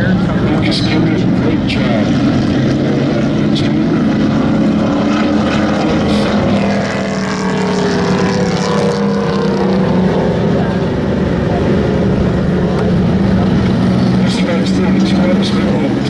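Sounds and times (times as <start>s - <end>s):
race truck engines at high revs: 0.0s - 16.0s.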